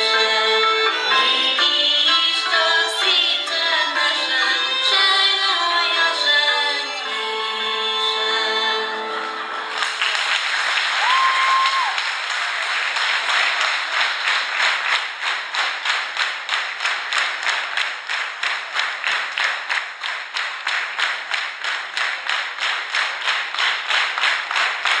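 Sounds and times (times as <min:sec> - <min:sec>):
rhythmic clapping in unison: 0:00.0 - 0:05.4, 0:09.6 - 0:25.0
audience applauding: 0:09.4 - 0:25.0.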